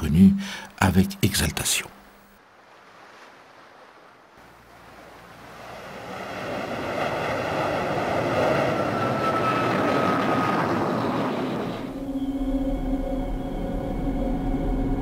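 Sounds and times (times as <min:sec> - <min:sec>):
rushing noise like wind: 0:04.4 - 0:12.0.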